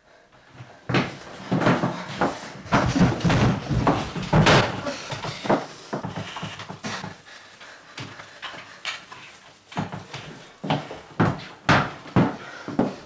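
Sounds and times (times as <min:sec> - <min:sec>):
rustling: 0:01.2 - 0:10.7.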